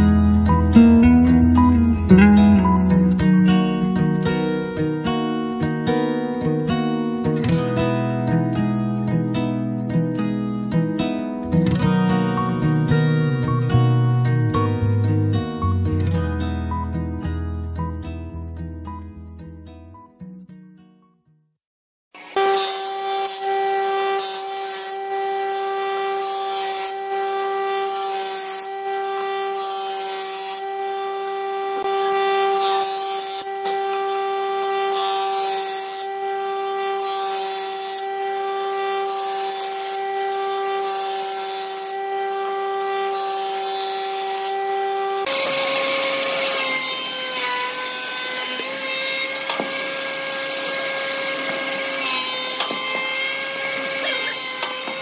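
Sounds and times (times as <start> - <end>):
thickness planer whine: 0.0 - 8.8, 22.2 - 55.0
jointer whine: 22.2 - 55.0.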